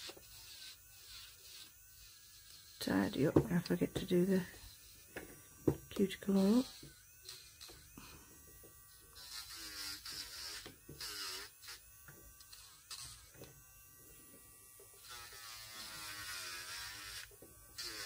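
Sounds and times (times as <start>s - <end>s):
electric nail drill whine: 0.0s - 18.0s
drill bit hiss on nail: 6.4s - 11.8s.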